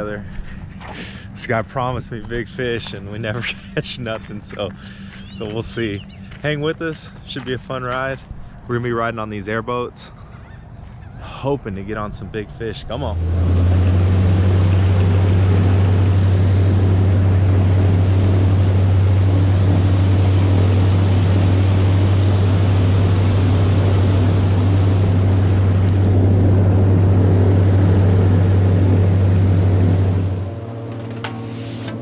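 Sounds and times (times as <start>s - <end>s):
airboat engine and propeller: 0.0s - 8.4s, 9.2s - 32.0s.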